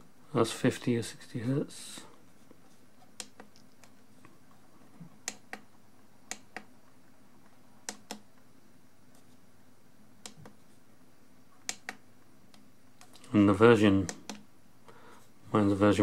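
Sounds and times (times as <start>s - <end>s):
faint low hum: 0.0s - 16.0s
microscope buttons clicking: 3.2s - 4.0s, 5.2s - 5.7s, 6.3s - 6.7s, 7.8s - 8.3s, 11.6s - 13.2s.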